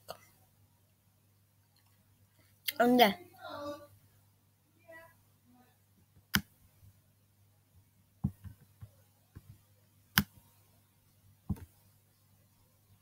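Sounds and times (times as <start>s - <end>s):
laptop touchpad clicks and taps: 11.5s - 11.7s.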